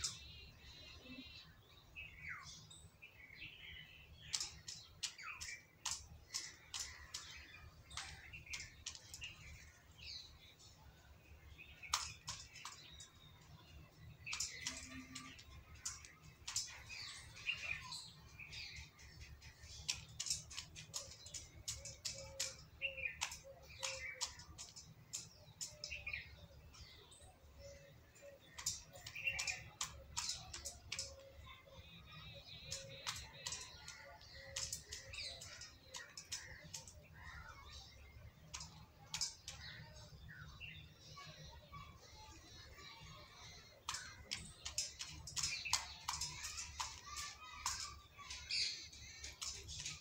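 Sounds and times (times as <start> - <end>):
small birds chirping: 0.0 - 50.0
beak clicking on steel bowl: 4.3 - 9.6, 11.6 - 13.3, 14.1 - 26.4, 28.4 - 31.4, 32.0 - 40.2, 43.5 - 50.0.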